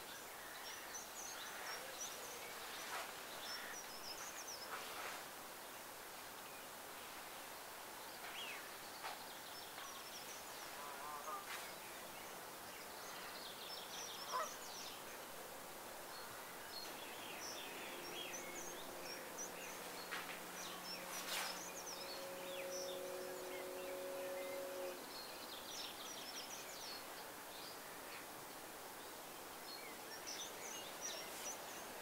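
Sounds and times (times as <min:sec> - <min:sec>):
birds chirping: 0:08.0 - 0:15.3, 0:16.0 - 0:28.2
steady low hum with tones: 0:16.4 - 0:25.2.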